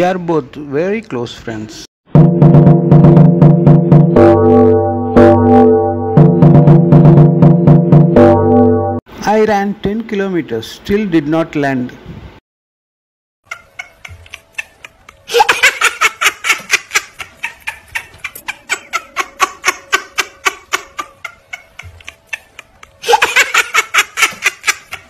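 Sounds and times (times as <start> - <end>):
laughter in ha-ha pulses: 13.5 - 25.0.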